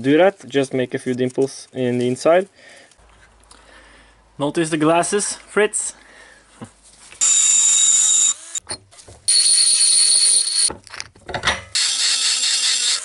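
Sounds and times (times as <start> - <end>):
rotary grinder whining: 7.2 - 8.6, 9.3 - 10.7, 11.7 - 13.0.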